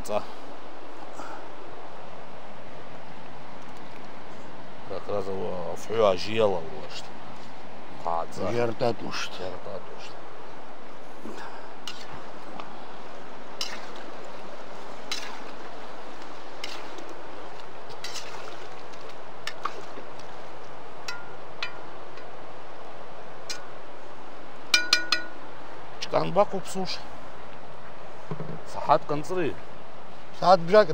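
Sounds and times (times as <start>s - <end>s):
faint clicks: 3.6s - 4.2s
sharp metallic clinks: 24.8s - 25.4s.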